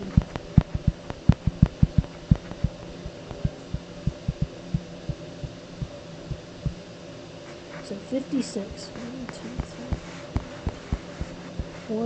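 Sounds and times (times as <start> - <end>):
faint electrical hum: 0.0 - 12.0
stylus tapping on a tablet: 0.2 - 2.8.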